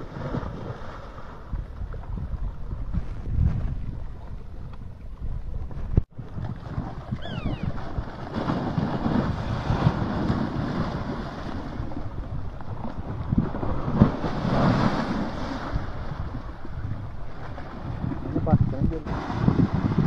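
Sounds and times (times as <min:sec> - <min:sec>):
wind buffeting microphone: 0:00.0 - 0:20.0
earth collapsing into water: 0:06.0 - 0:18.1.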